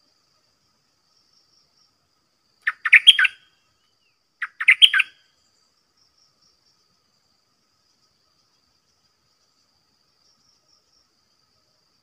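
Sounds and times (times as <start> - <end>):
bulbul singing: 2.6 - 3.4, 4.4 - 5.2.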